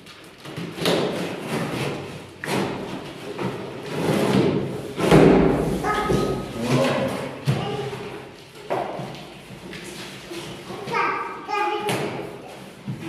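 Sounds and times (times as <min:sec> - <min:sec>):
cardboard flaps scraping and thumping: 0:00.4 - 0:06.4.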